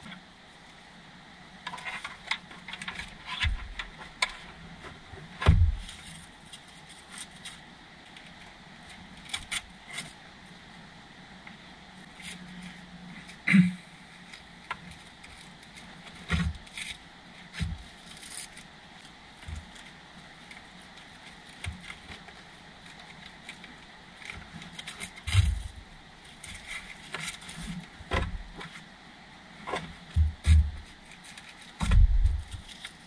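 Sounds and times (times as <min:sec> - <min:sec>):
knocks and thumps: 0:05.4 - 0:05.9, 0:29.7 - 0:30.8, 0:31.8 - 0:32.6.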